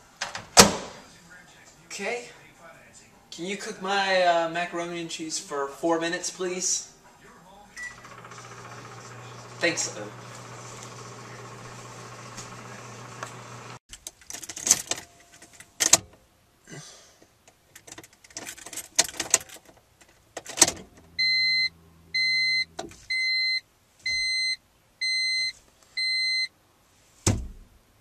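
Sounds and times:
dashboard warning chime beeping: 0:07.8 - 0:09.8, 0:21.1 - 0:26.5
keys and car fittings clicking: 0:17.5 - 0:20.8.

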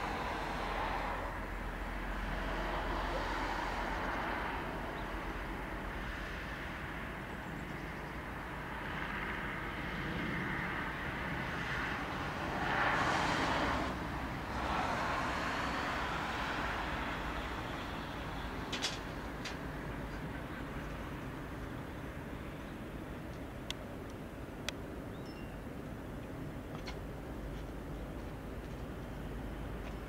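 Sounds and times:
vehicle passing: 0:00.0 - 0:06.5, 0:10.1 - 0:18.6
distant traffic rumble: 0:00.0 - 0:30.0.

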